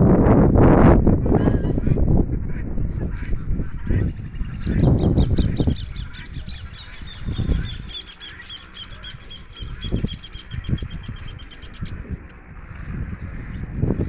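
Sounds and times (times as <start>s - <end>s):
microphone rumbles: 0.0s - 7.9s.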